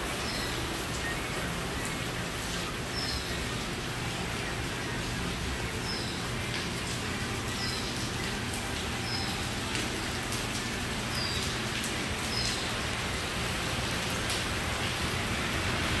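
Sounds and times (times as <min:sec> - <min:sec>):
steady rain falling: 0:00.0 - 0:16.0.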